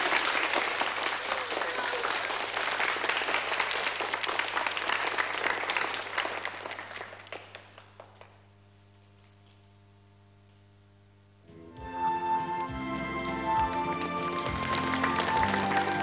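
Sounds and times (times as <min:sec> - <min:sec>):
children applauding: 0:00.0 - 0:08.4, 0:13.2 - 0:16.0
faint steady hum: 0:02.6 - 0:11.9.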